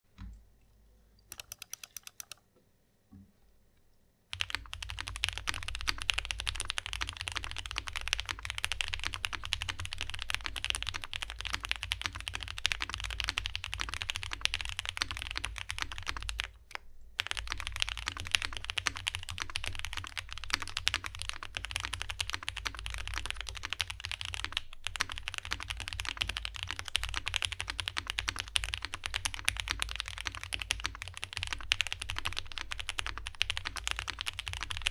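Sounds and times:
mechanical keyboard typing: 1.3s - 2.4s, 4.3s - 16.6s, 17.2s - 34.9s.

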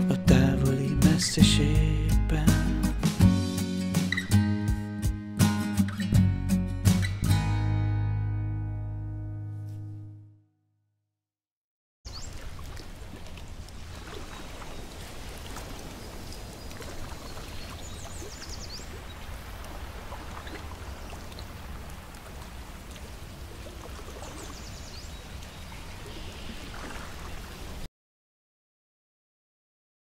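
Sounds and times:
waves lapping against rocks: 12.1s - 27.9s.

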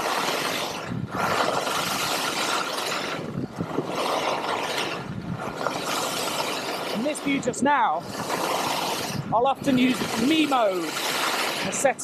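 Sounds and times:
skis scraping on snow: 0.0s - 12.0s.

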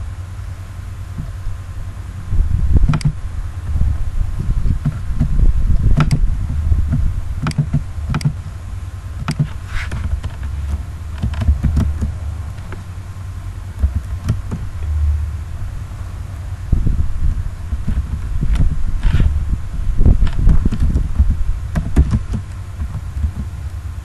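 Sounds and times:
steady low rumble: 0.0s - 24.0s
computer mouse clicks: 2.9s - 3.2s, 7.4s - 8.4s, 9.2s - 9.5s.

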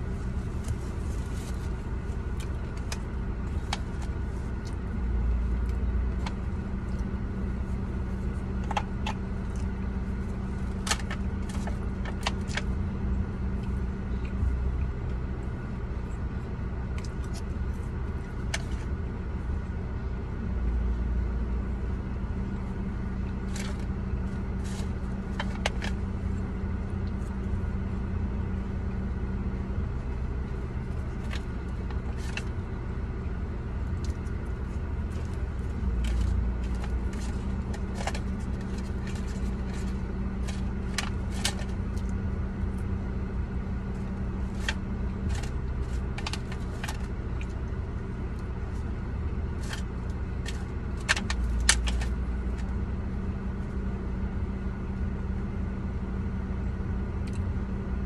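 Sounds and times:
car idling hum: 0.0s - 58.0s.

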